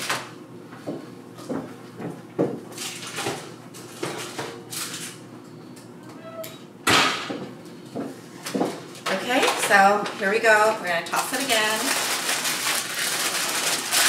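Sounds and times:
parchment rustling: 0:09.2 - 0:14.0.

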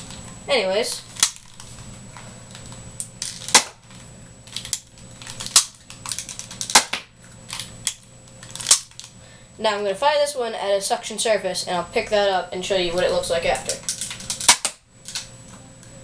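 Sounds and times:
toy blaster plastic snaps: 0:03.2 - 0:03.8, 0:04.5 - 0:09.1, 0:13.7 - 0:15.3.

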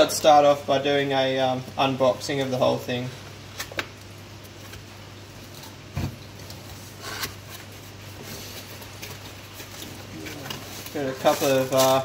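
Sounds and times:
cardboard rustling and scraping: 0:05.6 - 0:12.0.

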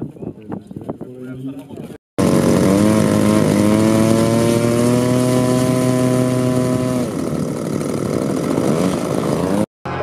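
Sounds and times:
model aircraft engine running: 0:02.2 - 0:10.0.

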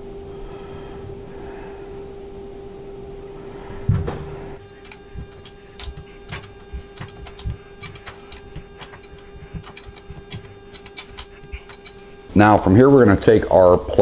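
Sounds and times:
steady hum: 0:02.0 - 0:12.4
hand tool clicks and ticks: 0:04.6 - 0:12.2.

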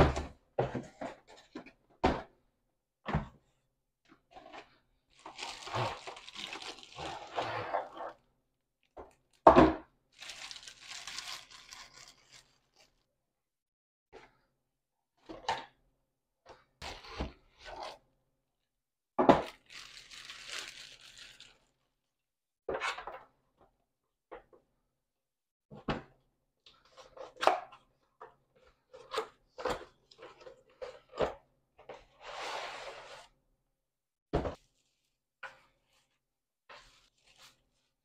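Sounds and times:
packaging rustling and tearing: 0:05.2 - 0:07.4, 0:10.2 - 0:13.0, 0:19.4 - 0:21.7.

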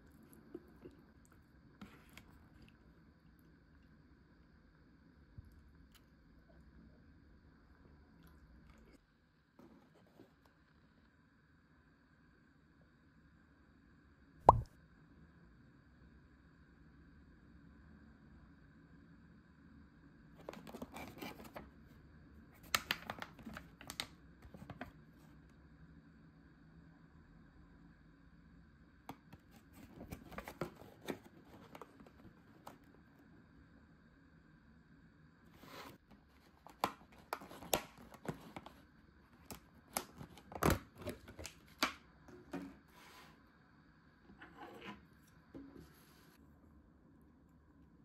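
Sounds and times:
plastic packaging crinkling and clicking: 0:22.6 - 0:24.9, 0:36.4 - 0:38.8, 0:39.4 - 0:42.0
plastic container rustle: 0:35.6 - 0:38.8.

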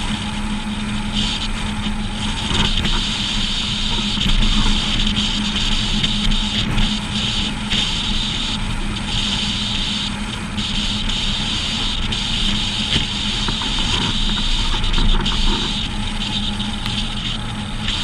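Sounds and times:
constant low hum: 0:00.0 - 0:18.0
road and wind noise: 0:00.0 - 0:18.0.

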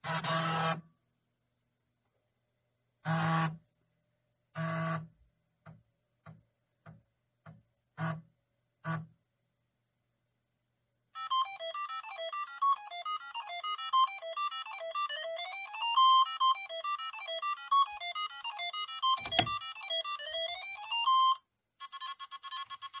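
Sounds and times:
repeating trill-like tone: 0:11.2 - 0:21.4.

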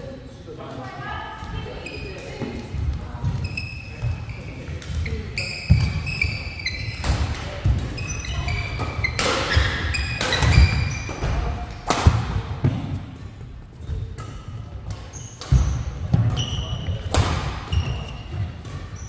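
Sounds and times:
shoes squeaking on floor: 0:01.4 - 0:11.5, 0:15.0 - 0:19.0
rackets striking shuttlecock: 0:06.8 - 0:13.2, 0:14.0 - 0:19.0.

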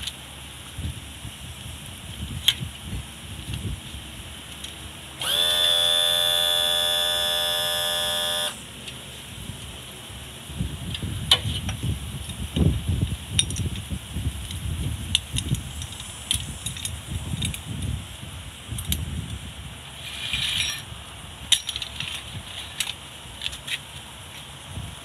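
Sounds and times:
electric trim motor whine: 0:05.2 - 0:08.7.

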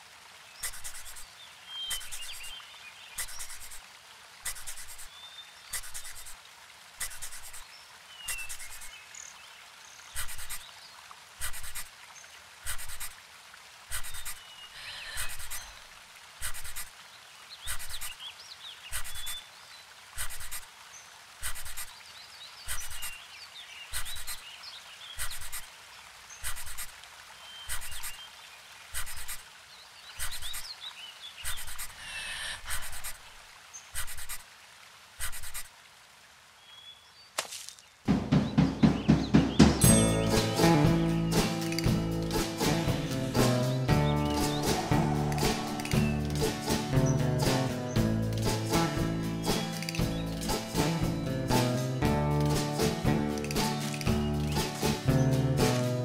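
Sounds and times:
birds chirping faintly: 0:00.4 - 0:03.8, 0:04.4 - 0:13.2, 0:13.9 - 0:34.4, 0:36.5 - 0:56.0
heavy breathing: 0:13.9 - 0:15.8, 0:31.5 - 0:33.2.

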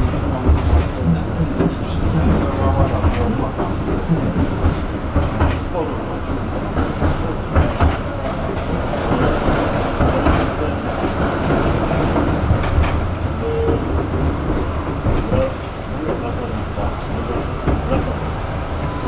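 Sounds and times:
knocks and clatters: 0:00.0 - 0:18.2
steel wheels rumbling on rails: 0:00.0 - 0:19.0
tram wheel squeal: 0:06.8 - 0:19.0.

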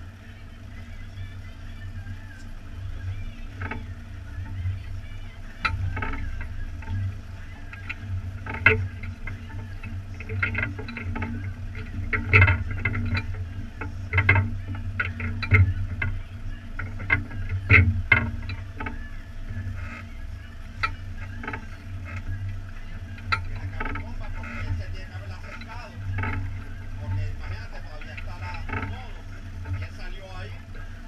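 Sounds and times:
boat engine low rumble: 0:00.0 - 0:31.0
water slapping against hull: 0:01.0 - 0:31.0.

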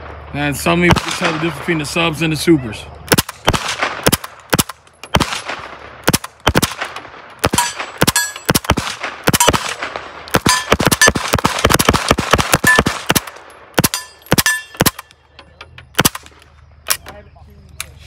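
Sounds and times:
suppressed gunshots: 0:00.8 - 0:01.8, 0:03.0 - 0:15.2, 0:15.9 - 0:17.1.

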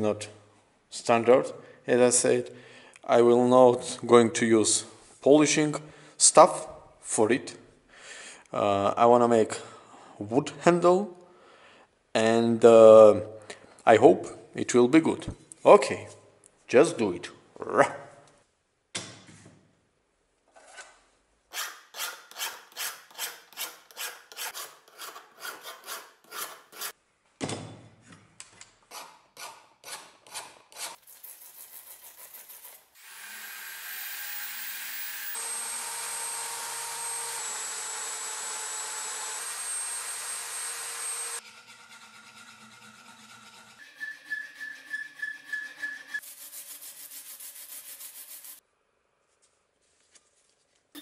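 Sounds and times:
file rasping on steel: 0:21.5 - 0:27.0, 0:41.1 - 0:48.6.

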